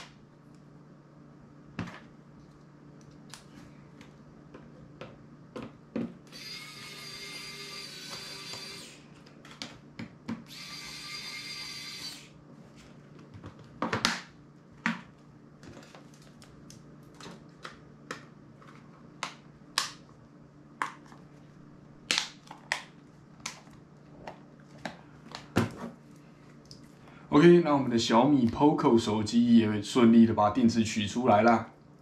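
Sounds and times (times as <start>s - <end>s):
electric screwdriver whirring: 6.3s - 9.0s, 10.5s - 12.3s.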